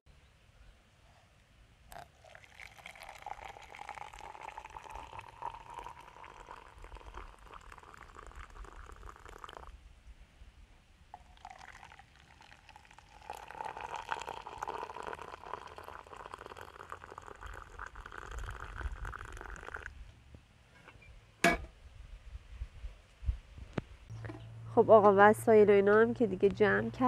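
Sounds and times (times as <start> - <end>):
water pouring: 1.9 - 9.7, 11.1 - 20.0.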